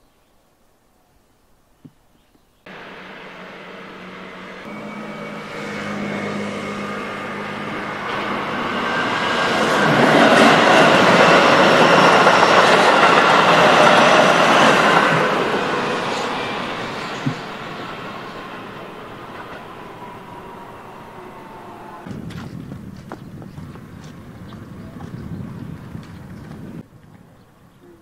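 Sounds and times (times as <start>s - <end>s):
electric train passing: 2.7s - 26.9s.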